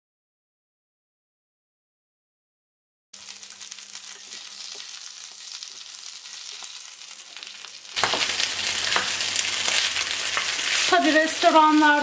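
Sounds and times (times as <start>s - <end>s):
spinach sizzling in oil: 3.2s - 12.0s.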